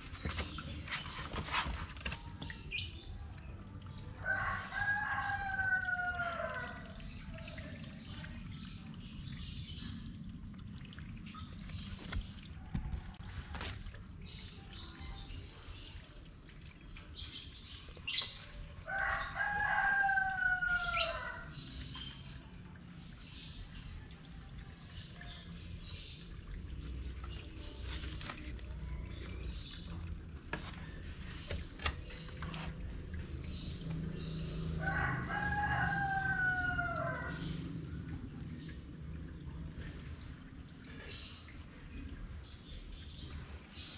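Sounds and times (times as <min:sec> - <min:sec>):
water drips: 0:00.0 - 0:43.9
rooster crowing: 0:18.9 - 0:21.5, 0:34.8 - 0:37.4
rain pattering: 0:25.2 - 0:41.0.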